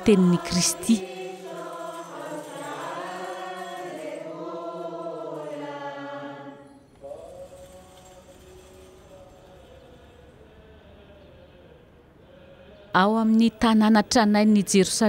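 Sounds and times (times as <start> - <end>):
women chanting a hymn: 0.0 - 7.2, 10.4 - 15.0.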